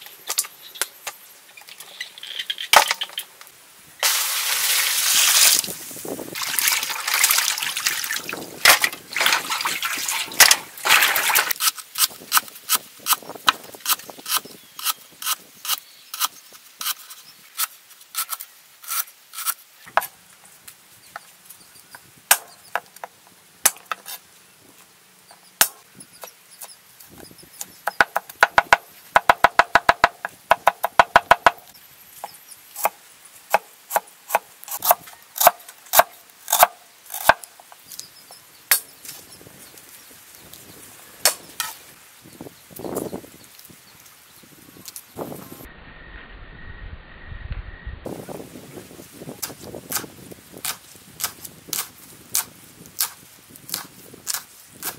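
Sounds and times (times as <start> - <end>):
water splashing into basin: 6.4 - 11.5.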